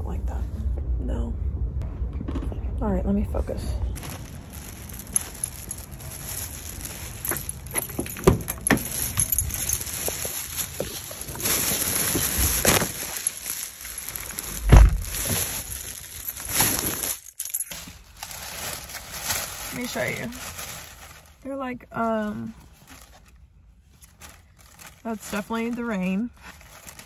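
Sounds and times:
plastic bag rustling: 0:03.9 - 0:27.0
car door shutting: 0:14.6 - 0:15.1.

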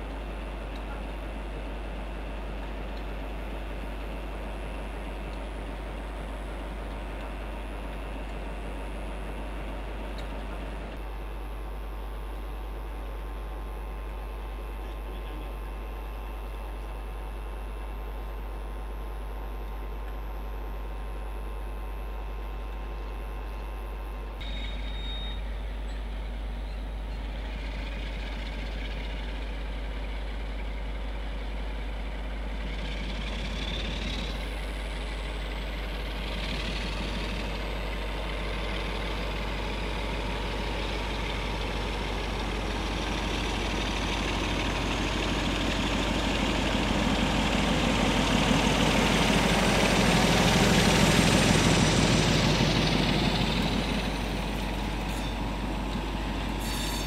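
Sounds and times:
diesel locomotive engines running: 0:00.0 - 0:57.0.

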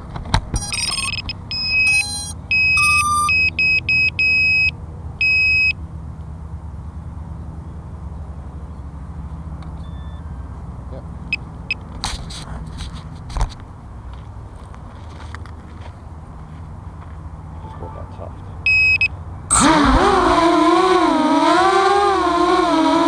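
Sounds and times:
high electronic beeps: 0:00.6 - 0:05.8, 0:17.6 - 0:20.4
steady low rumble: 0:04.7 - 0:21.1.

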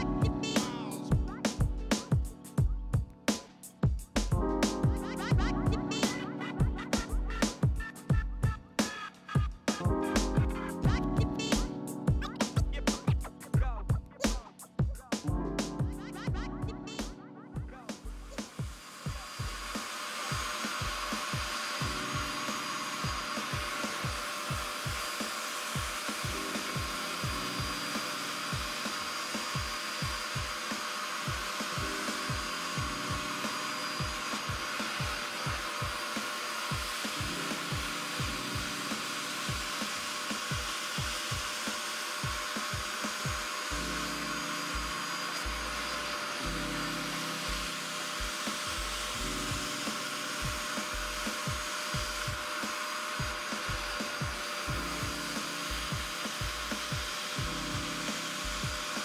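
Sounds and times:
music with deep bass beat: 0:00.0 - 0:25.2, 0:25.8 - 0:30.6, 0:31.3 - 0:36.0, 0:36.7 - 0:41.6, 0:42.2 - 0:52.6, 0:53.2 - 0:59.0
carpet extractor sucking water: 0:18.0 - 0:59.0.

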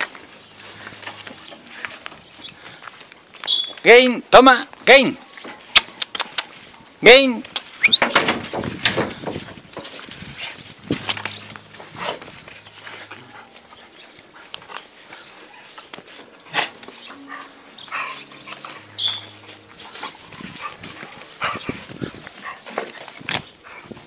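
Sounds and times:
dogs scuffling: 0:00.0 - 0:03.8, 0:07.4 - 0:24.0
puppies yipping: 0:10.5 - 0:23.9
dogs growling: 0:16.4 - 0:24.0.

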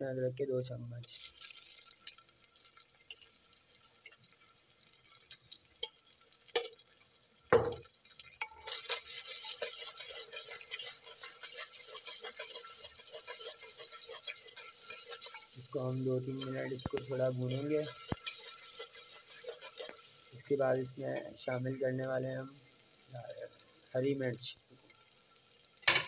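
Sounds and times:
onions sizzling in hot oil: 0:00.6 - 0:26.0
spoon stirring in pot: 0:07.6 - 0:23.0.

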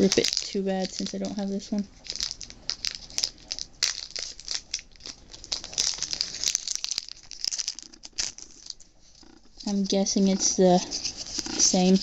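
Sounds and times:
foil tearing: 0:00.0 - 0:08.8
foil wrapper crinkling: 0:00.0 - 0:12.0.

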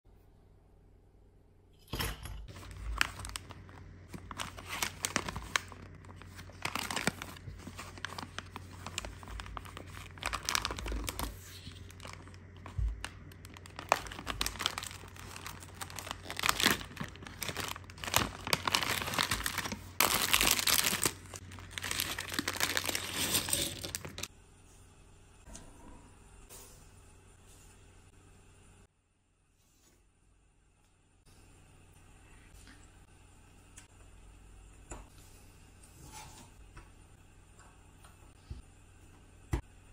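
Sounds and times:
bag of plastic bricks handled: 0:02.5 - 0:24.3
plastic bag being torn open: 0:02.5 - 0:24.3
plastic packaging crinkling: 0:02.5 - 0:24.3.

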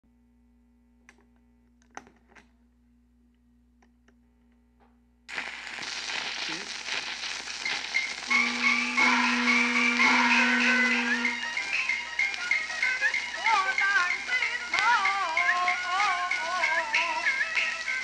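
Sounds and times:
record groove hiss and crackle: 0:05.3 - 0:18.0
turntable hum: 0:05.3 - 0:18.0
opera music: 0:08.3 - 0:18.0.

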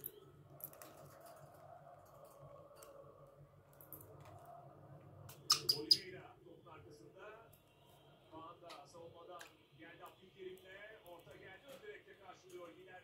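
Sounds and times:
faint steady hum: 0:00.0 - 0:13.0
budgerigars clicking and tapping: 0:05.3 - 0:06.1.

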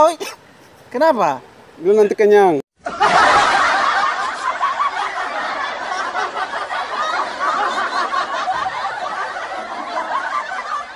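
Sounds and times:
hearty overlapping laughter: 0:02.8 - 0:10.9.

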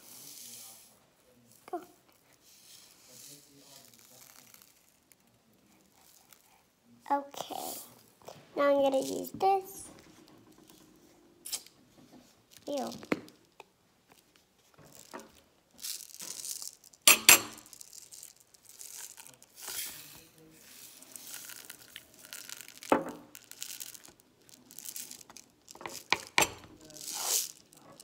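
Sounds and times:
sprinkles rattling in a plastic jar: 0:00.0 - 0:06.5, 0:12.5 - 0:13.5, 0:14.1 - 0:28.0.

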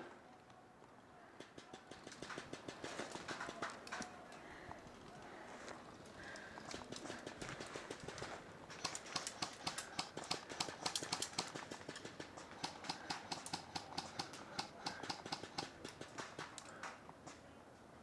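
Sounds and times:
airsoft guns firing: 0:01.4 - 0:04.3, 0:06.2 - 0:16.8.

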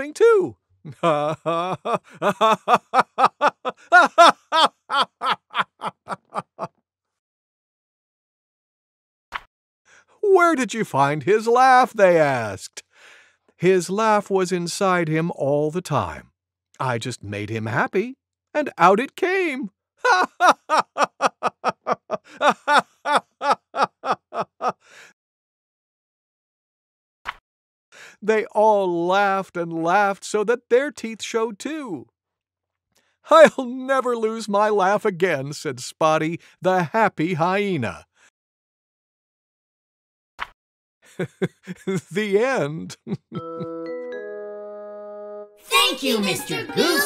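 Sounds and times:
person laughing: 0:00.2 - 0:06.7, 0:20.1 - 0:25.1, 0:41.1 - 0:43.9, 0:45.7 - 0:47.0.

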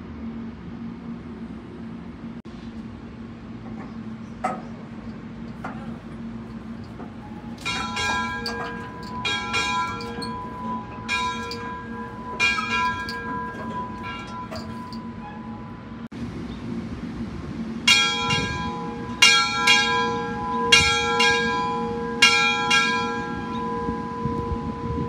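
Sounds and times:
steam locomotive bell ringing: 0:05.0 - 0:16.0, 0:17.9 - 0:25.0.

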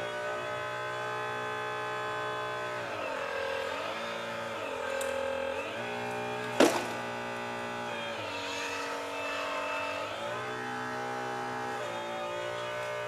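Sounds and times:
model excavator motor droning: 0:00.0 - 0:13.0
sharp knock: 0:06.5 - 0:07.0.

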